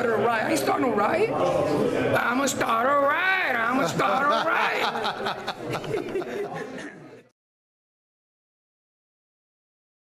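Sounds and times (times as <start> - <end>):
voice: 2.2 - 7.3.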